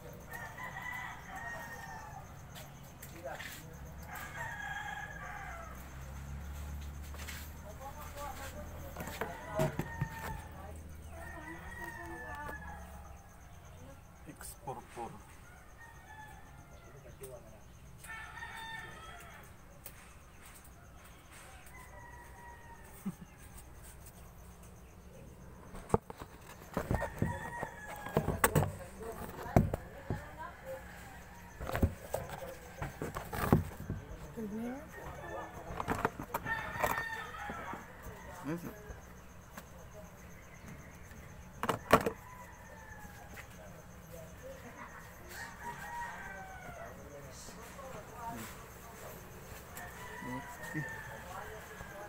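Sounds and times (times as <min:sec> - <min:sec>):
faint rooster crowing: 0:00.0 - 0:52.0
calls or voices: 0:26.6 - 0:52.0.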